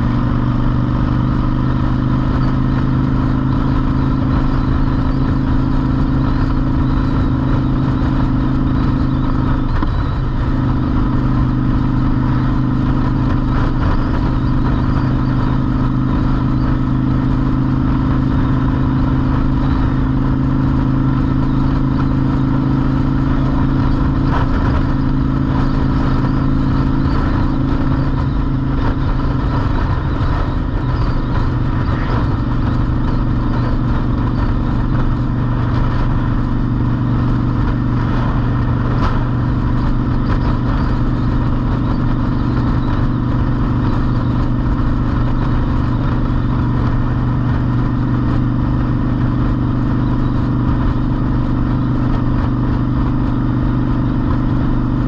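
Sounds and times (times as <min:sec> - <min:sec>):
motorcycle engine cruising: 0:00.0 - 0:55.0
road noise: 0:00.0 - 0:55.0.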